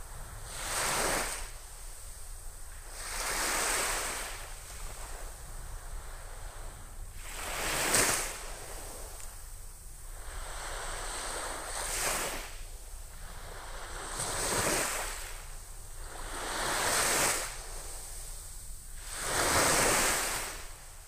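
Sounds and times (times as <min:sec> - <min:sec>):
sea waves breaking on sand: 0:00.4 - 0:02.1, 0:02.8 - 0:06.4, 0:07.2 - 0:09.2, 0:10.3 - 0:12.6, 0:13.3 - 0:18.3, 0:19.0 - 0:20.8.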